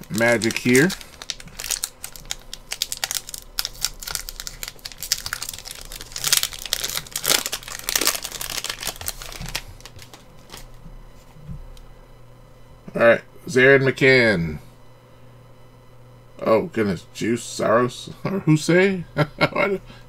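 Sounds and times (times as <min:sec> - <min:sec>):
plastic foil wrapper crinkling and tearing: 0:00.0 - 0:10.8.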